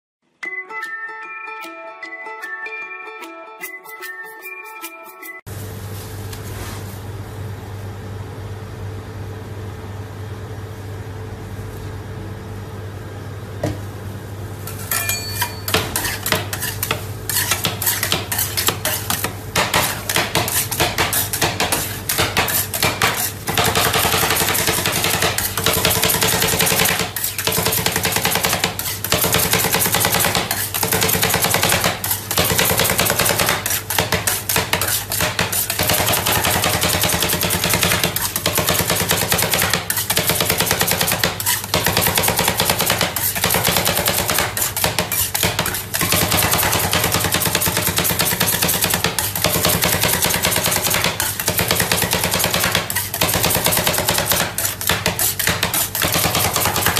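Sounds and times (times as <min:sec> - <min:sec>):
spatulas chopping on metal plate: 0:14.7 - 0:56.9.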